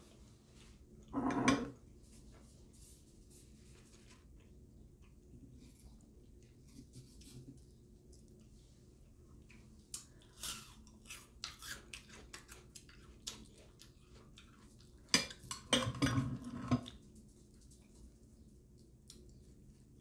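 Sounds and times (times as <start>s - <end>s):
metal utensil scraping glass dish: 1.2s - 1.7s
chewing bread: 4.0s - 20.0s.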